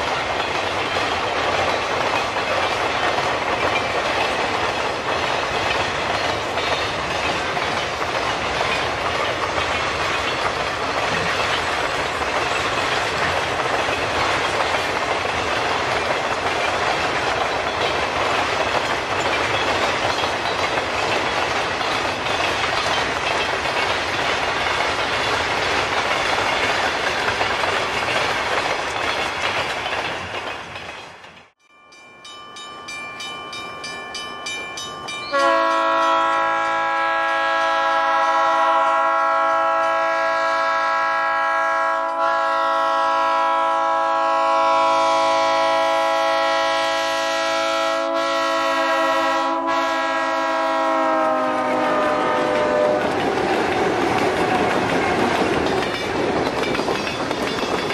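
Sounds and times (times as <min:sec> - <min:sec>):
freight train wheel clatter: 0:00.0 - 0:31.6, 0:51.0 - 0:57.9
locomotive horn blast: 0:35.3 - 0:53.2.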